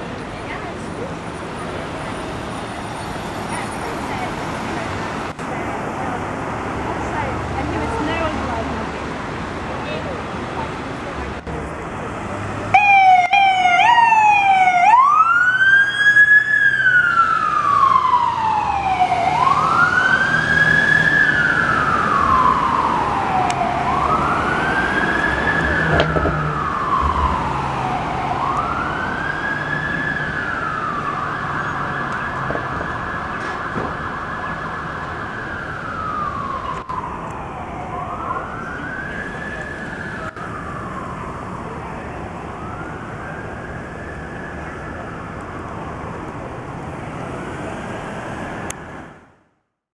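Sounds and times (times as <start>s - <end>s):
truck siren yelping and wailing: 12.7s - 46.2s.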